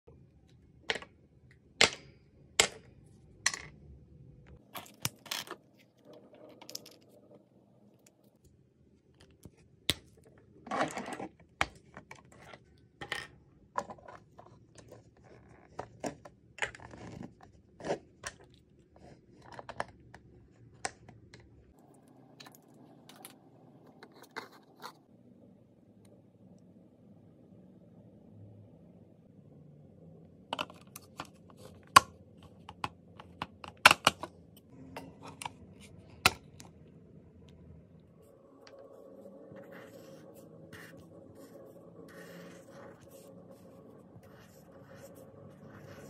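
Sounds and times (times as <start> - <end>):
scratchy handling of markers: 39.5 - 46.0.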